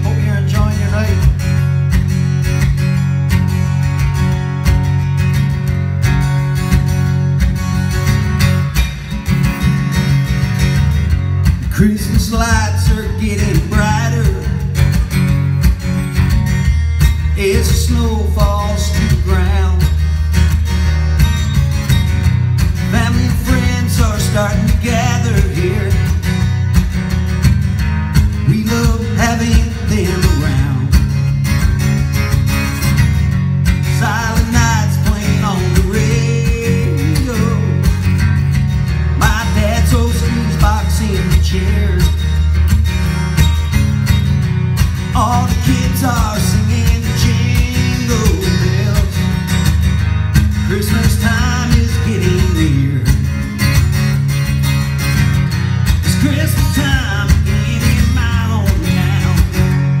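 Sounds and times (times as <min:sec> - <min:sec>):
man's voice: 0:00.0 - 0:01.5, 0:11.7 - 0:14.8, 0:17.3 - 0:20.2, 0:22.9 - 0:26.2, 0:28.4 - 0:31.1, 0:33.9 - 0:37.9, 0:39.2 - 0:42.2, 0:45.1 - 0:49.3, 0:50.7 - 0:53.2, 0:56.1 - 0:59.8
acoustic guitar strumming: 0:00.0 - 1:00.0.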